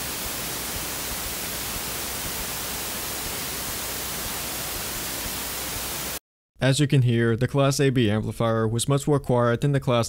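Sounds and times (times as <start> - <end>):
amplifier hiss: 0.0 - 6.2.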